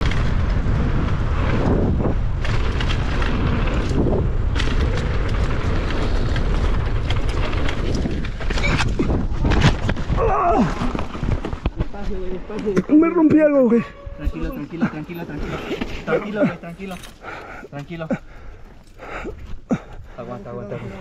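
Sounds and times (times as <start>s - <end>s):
bike rattles and knocks: 0.0s - 13.7s
tyres rolling over dirt: 0.0s - 13.8s
wind buffeting microphone: 0.0s - 17.4s.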